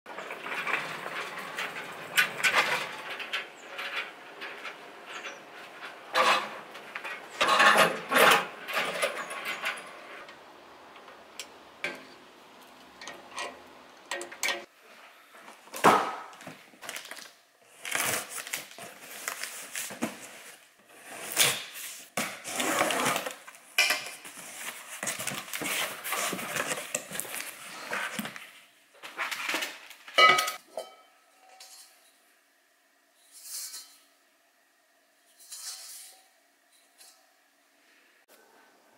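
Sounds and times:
knocks and clatters: 0:00.1 - 0:10.3
wok clanking and ringing: 0:30.2 - 0:31.9.

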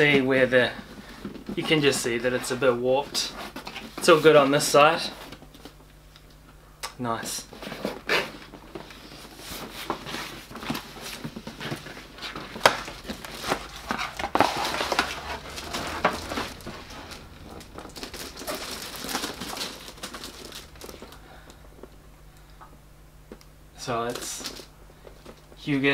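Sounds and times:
cardboard and plastic rustling: 0:00.0 - 0:05.9, 0:07.4 - 0:22.0, 0:23.3 - 0:25.9.

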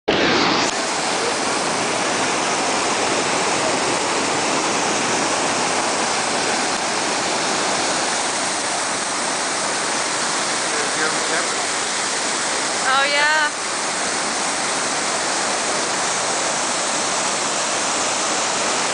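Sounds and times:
floodwater roaring: 0:00.1 - 0:18.9.

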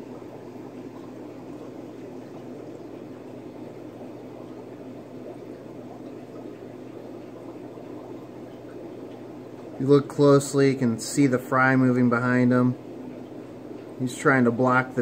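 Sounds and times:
aquarium air bubbling: 0:00.0 - 0:15.0
low steady hum: 0:00.0 - 0:15.0.

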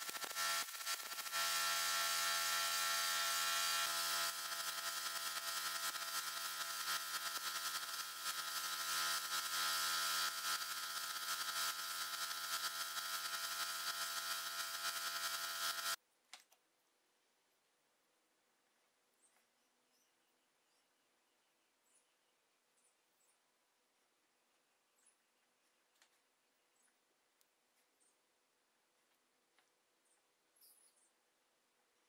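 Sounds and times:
mechanical hum: 0:00.0 - 0:16.0.

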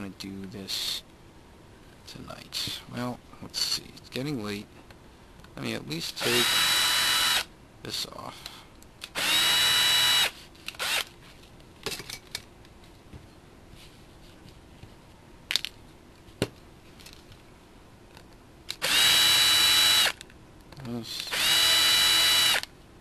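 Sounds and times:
cordless drill whining: 0:06.2 - 0:07.5, 0:09.1 - 0:11.1, 0:18.8 - 0:20.2, 0:21.3 - 0:22.7.

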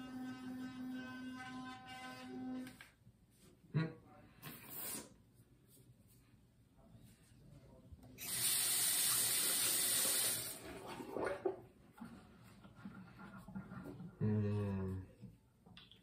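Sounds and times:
sink tap water running: 0:08.2 - 0:10.6.

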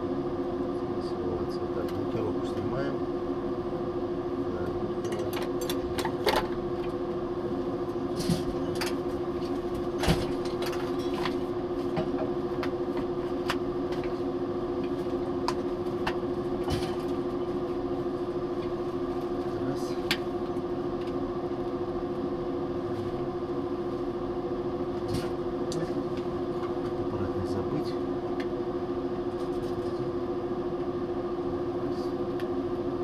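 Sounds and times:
ventilation fans humming: 0:00.0 - 0:33.0.

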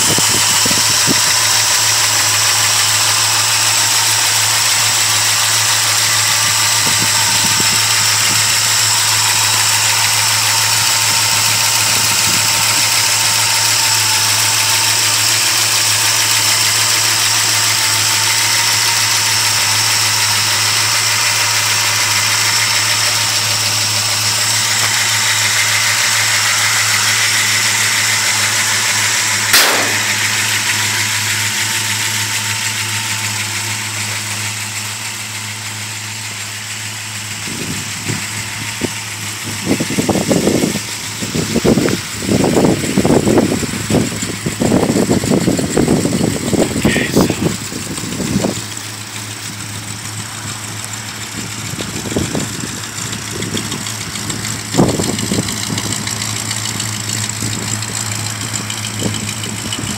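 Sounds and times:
car engine idling: 0:00.0 - 0:59.9
sharp click: 0:29.5 - 0:30.8.

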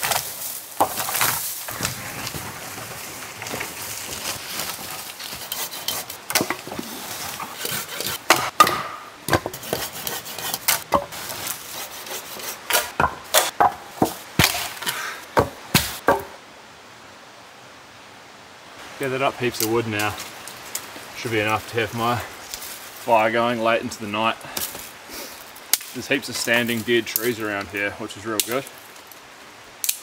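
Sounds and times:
wood chopped with a blade: 0:00.0 - 0:02.0, 0:04.8 - 0:16.4
branches rustling and dragging: 0:00.0 - 0:16.4, 0:18.8 - 0:29.7
faint background hiss: 0:00.0 - 0:30.0.

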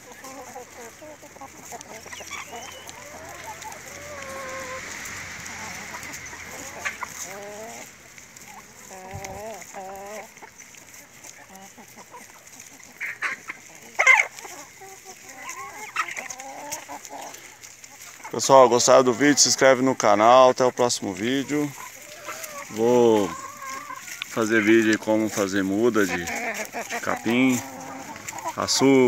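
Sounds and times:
hens clucking and calling: 0:00.0 - 0:29.0.

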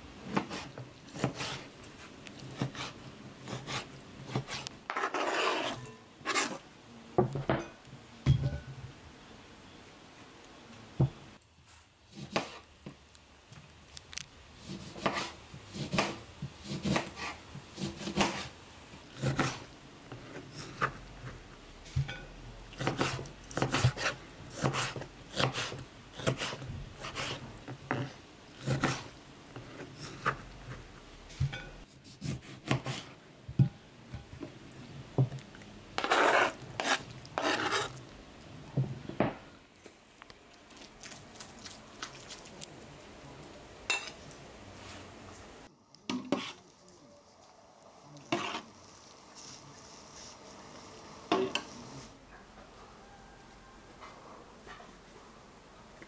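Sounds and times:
knife scraping cutting board: 0:00.3 - 0:01.7, 0:02.5 - 0:06.6, 0:12.1 - 0:12.7, 0:14.6 - 0:18.6, 0:19.2 - 0:21.4, 0:22.8 - 0:33.1, 0:36.0 - 0:38.0, 0:48.2 - 0:48.7
knife chopping on cutting board: 0:12.2 - 0:12.6, 0:14.7 - 0:18.5, 0:22.8 - 0:29.1, 0:31.4 - 0:33.1.

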